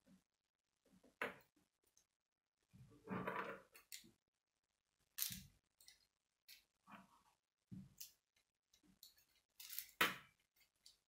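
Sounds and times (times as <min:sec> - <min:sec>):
plastic pieces clicking: 0:09.0 - 0:11.0.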